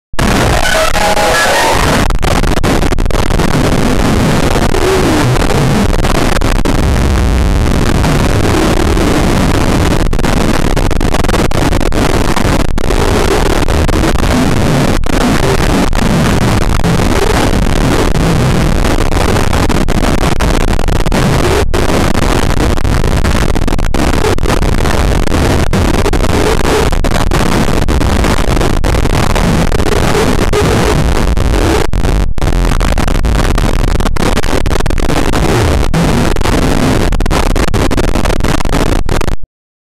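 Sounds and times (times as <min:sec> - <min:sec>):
loud clipped distortion noise: 0:00.0 - 0:39.5
faint wavering pitched sounds: 0:00.2 - 0:02.1.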